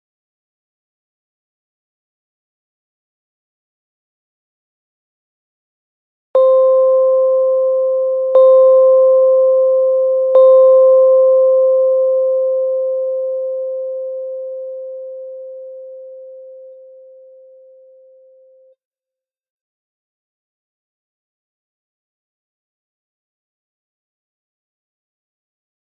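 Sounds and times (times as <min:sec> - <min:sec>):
timer bell chime: 0:06.4 - 0:18.7.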